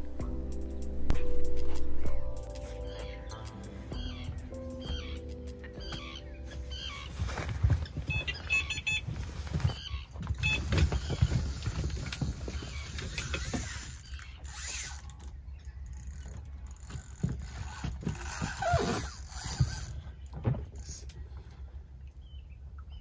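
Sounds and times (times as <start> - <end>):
knocks and thuds in a boat: 4.1 - 13.8, 16.1 - 21.8.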